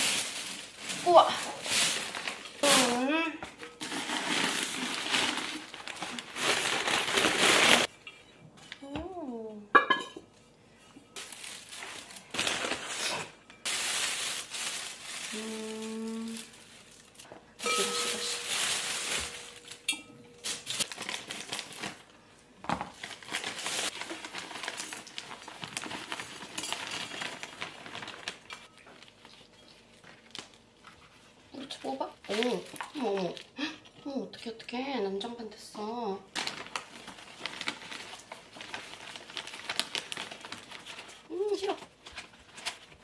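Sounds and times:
plastic bags crinkling: 0:00.0 - 0:07.9, 0:11.2 - 0:30.9, 0:31.8 - 0:33.8, 0:36.2 - 0:43.0.

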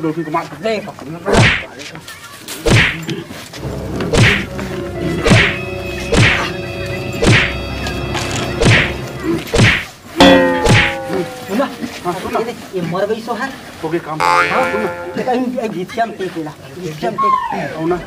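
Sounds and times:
sticks whacking a sack: 0:01.3 - 0:01.7, 0:02.7 - 0:03.0, 0:04.2 - 0:04.5, 0:05.2 - 0:06.5, 0:07.2 - 0:07.6, 0:08.6 - 0:09.9, 0:10.6 - 0:11.2
background music with held notes: 0:03.6 - 0:09.5, 0:14.2 - 0:15.5
falling tone: 0:10.2 - 0:11.6, 0:14.2 - 0:15.5.

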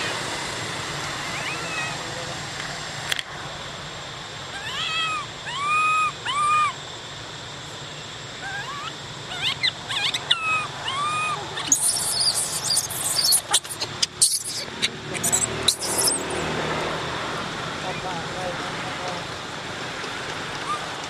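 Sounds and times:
infant monkey crying coos: 0:01.2 - 0:02.2, 0:04.5 - 0:06.8, 0:08.3 - 0:16.4, 0:20.6 - 0:21.0
hissing scuffle with clicks: 0:11.6 - 0:16.4.

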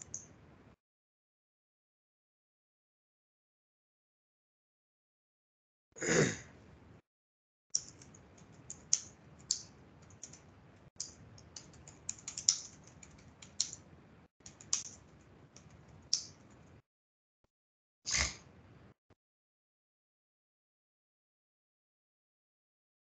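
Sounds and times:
laptop keyboard key clicks: 0:11.4 - 0:13.8.

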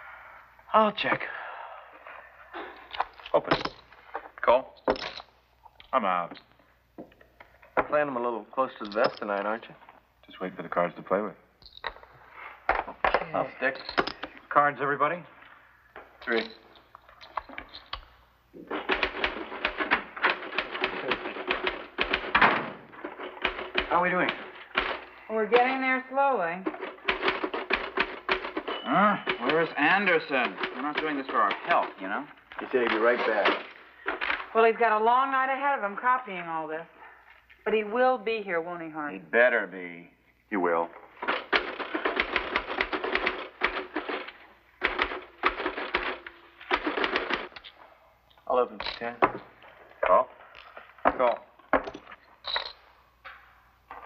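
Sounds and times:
typewriter keys striking fast: 0:18.7 - 0:25.0, 0:26.7 - 0:28.7, 0:29.3 - 0:31.9, 0:41.2 - 0:47.6.

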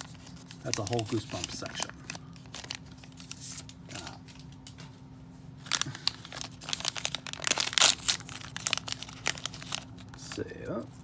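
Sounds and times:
plastic wrapper crinkling and tearing: 0:00.0 - 0:04.7, 0:05.6 - 0:11.0.

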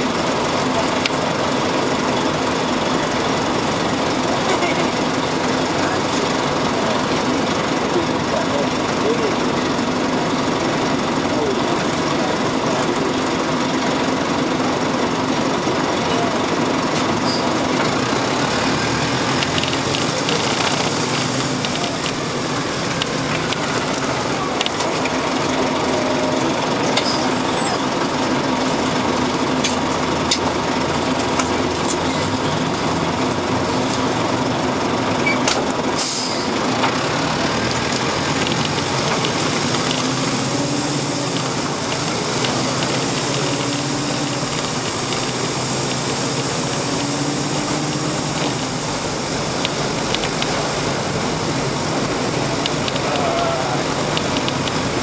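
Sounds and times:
bus engine: 0:00.0 - 0:55.0
short hiss: 0:36.0 - 0:36.5.

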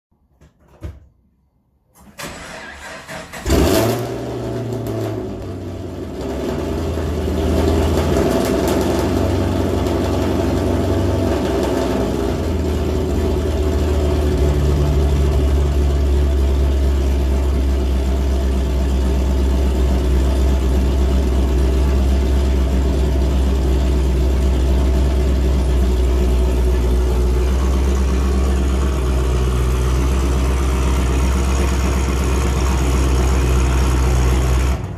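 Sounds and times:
car engine cranking: 0:02.0 - 0:04.3
engine starting with loud flare: 0:02.0 - 0:05.2
car engine idling: 0:02.6 - 0:34.9.

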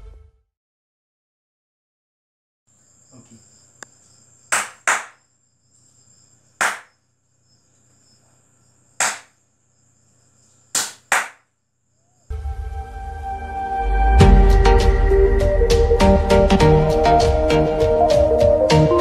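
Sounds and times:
music: 0:00.0 - 0:00.5, 0:12.3 - 0:19.0
hand claps: 0:04.5 - 0:05.2, 0:06.6 - 0:06.9, 0:09.0 - 0:09.3, 0:10.8 - 0:11.4.

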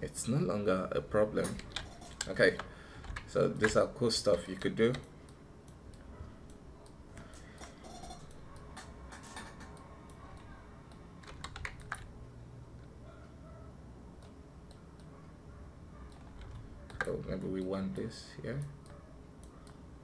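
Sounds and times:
keyboard and mouse clicks: 0:01.4 - 0:05.1, 0:05.7 - 0:12.1, 0:16.1 - 0:17.8.

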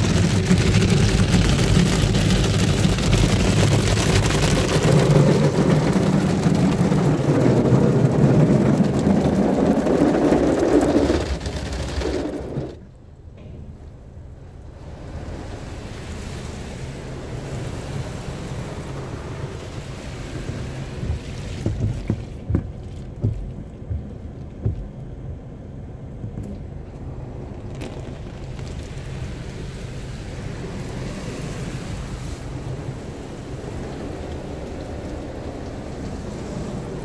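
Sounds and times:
water spray drumming on car: 0:00.0 - 0:12.8, 0:14.8 - 0:25.3, 0:27.0 - 0:37.0
low rumble: 0:00.0 - 0:37.0
heavy thumps: 0:21.0 - 0:25.0.

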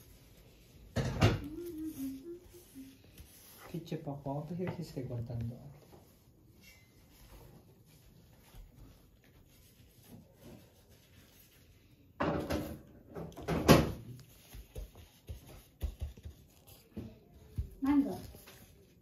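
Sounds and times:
household clatter and knocks: 0:12.2 - 0:14.3.

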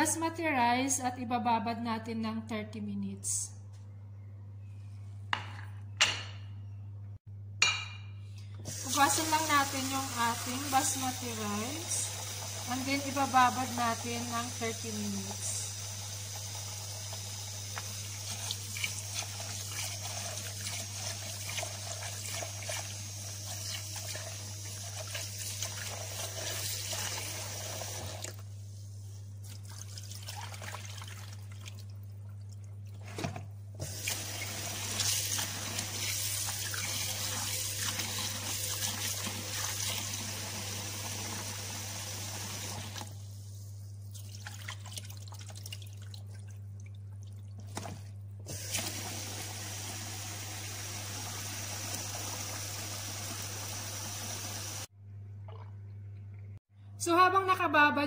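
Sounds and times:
tap water running into basin: 0:08.7 - 0:28.4, 0:29.4 - 0:32.6, 0:33.8 - 0:43.2, 0:44.1 - 0:54.9.

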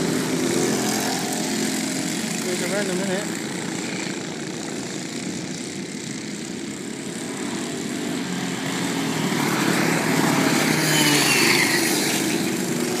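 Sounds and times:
kart engines whining: 0:00.0 - 0:13.0.

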